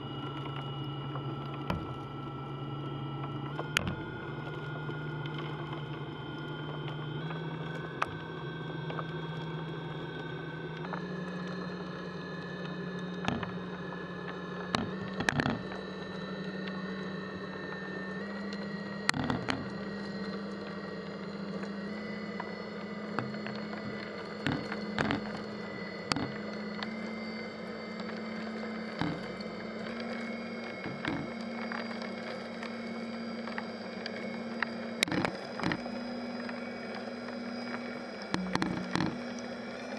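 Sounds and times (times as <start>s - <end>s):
motor humming: 0.0s - 39.9s.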